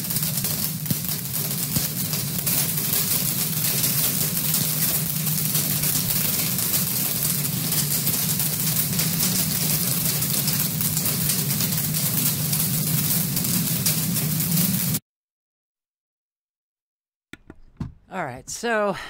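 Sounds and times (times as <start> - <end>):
hail clattering on lawn: 0.0 - 15.0.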